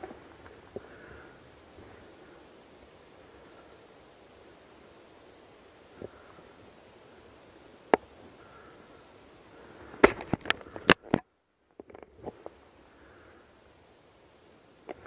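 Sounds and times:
faint clicks: 9.9s - 12.6s
twigs snapping: 10.0s - 11.2s.

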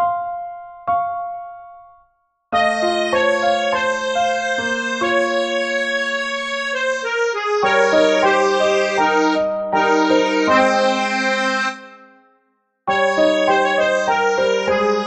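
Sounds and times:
slow reedy instrumental music: 2.6s - 12.2s, 12.9s - 15.0s.

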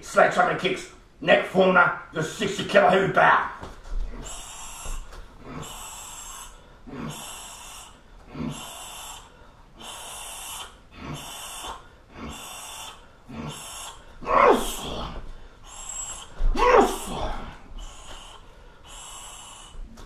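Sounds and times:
sharp hissing breaths: 4.1s - 20.0s
man yelling: 14.2s - 15.2s, 16.5s - 17.6s.

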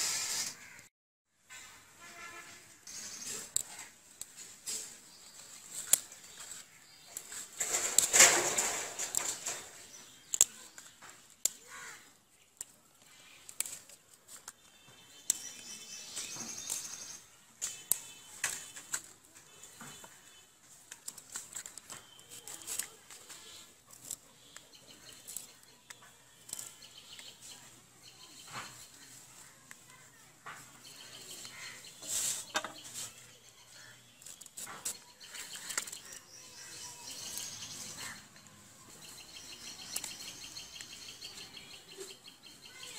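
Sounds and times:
leaves rustling: 1.6s - 42.9s
birds chirping: 2.2s - 42.9s
stems snapping: 3.4s - 16.9s, 17.6s - 20.1s, 20.8s - 27.8s, 33.8s - 41.0s
sharp clicks and snaps: 10.2s - 11.7s.

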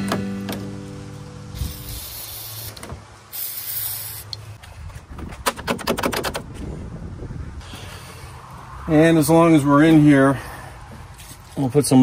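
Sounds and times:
aerosol spray hissing: 1.5s - 4.4s.

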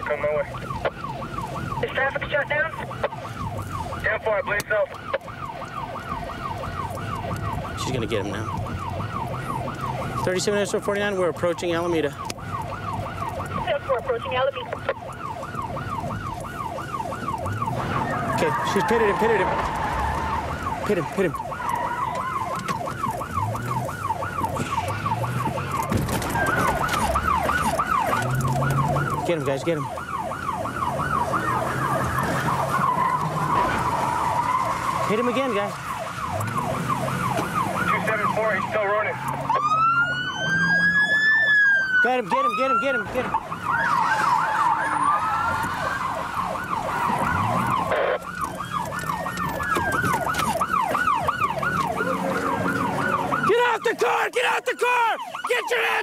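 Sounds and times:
police siren fast yelp: 0.0s - 56.0s
engine hum: 12.2s - 42.0s, 43.0s - 53.5s.

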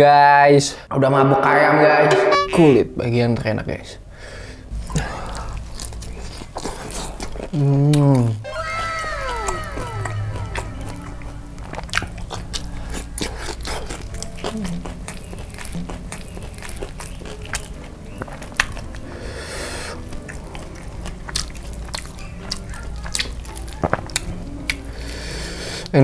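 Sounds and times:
crunchy chewing: 4.8s - 8.4s, 9.3s - 26.0s
wet mouth smacking: 5.9s - 8.4s, 21.3s - 25.2s.

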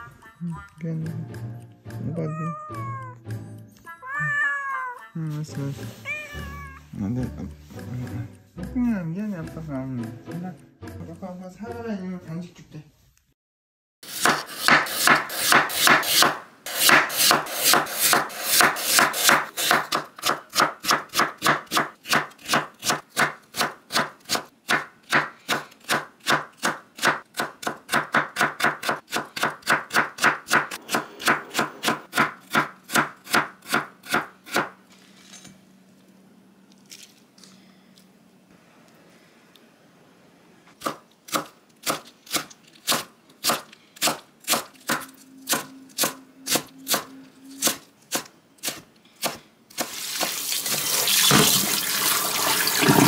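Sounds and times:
knife chopping on wooden board: 14.1s - 34.8s.

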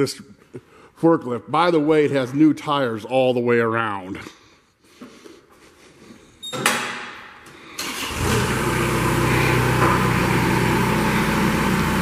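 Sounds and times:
diesel engine starting up: 7.7s - 12.0s.

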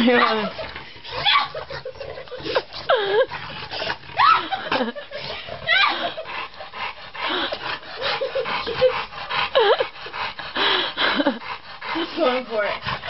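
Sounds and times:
dog squealing: 0.0s - 1.7s, 4.2s - 4.6s
dog panting: 0.0s - 13.0s.

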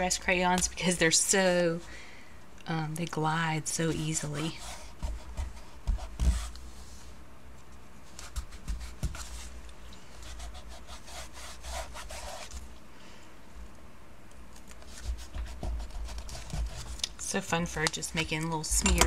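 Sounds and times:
crayon rubbing on paper: 10.2s - 12.6s.

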